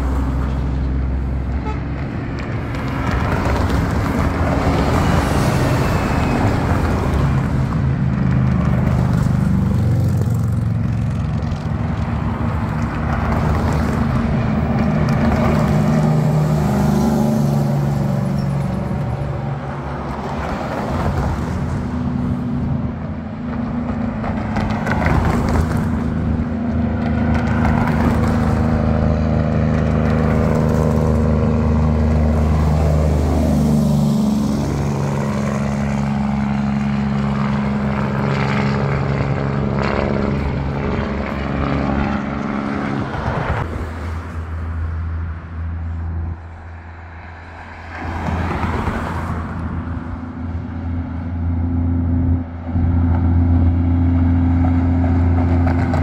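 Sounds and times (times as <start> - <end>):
trucks engine braking: 0.0 - 44.4
cars passing: 0.0 - 56.0.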